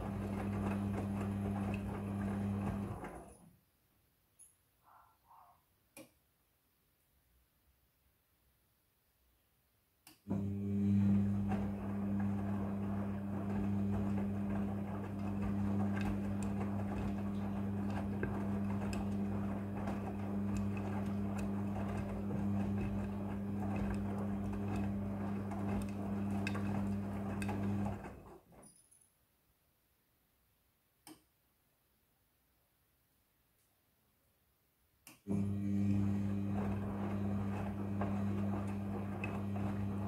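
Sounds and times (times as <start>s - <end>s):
washing machine drum motor humming: 0.0s - 3.3s, 10.3s - 28.6s, 35.2s - 40.0s
wet laundry sloshing: 11.4s - 28.2s.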